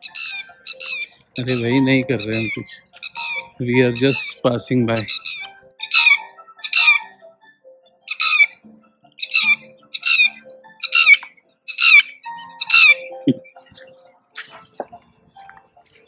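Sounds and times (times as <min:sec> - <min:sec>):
lapwing shrill alarm calls: 0:00.0 - 0:07.1, 0:08.1 - 0:08.6, 0:09.2 - 0:13.1.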